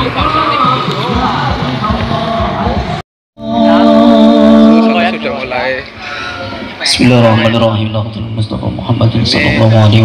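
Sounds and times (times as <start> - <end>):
loud music with singing: 0.0 - 5.4.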